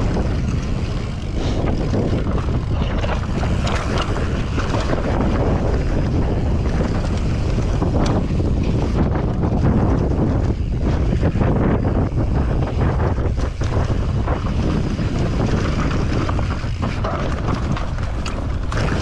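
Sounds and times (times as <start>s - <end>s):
bike rattling and knocking: 0.0s - 19.0s
tyre rumble: 0.0s - 19.0s
wind buffeting microphone: 0.0s - 19.0s.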